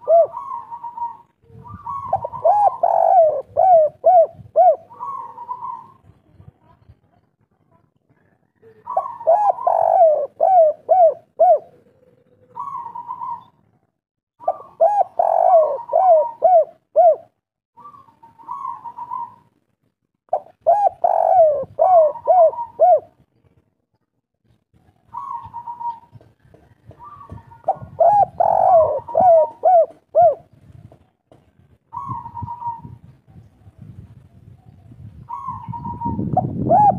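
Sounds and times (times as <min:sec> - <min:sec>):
dove cooing: 0:00.0 - 0:06.1, 0:08.6 - 0:13.7, 0:14.4 - 0:19.5, 0:20.3 - 0:23.2, 0:25.0 - 0:30.6, 0:31.9 - 0:33.5, 0:35.2 - 0:36.9.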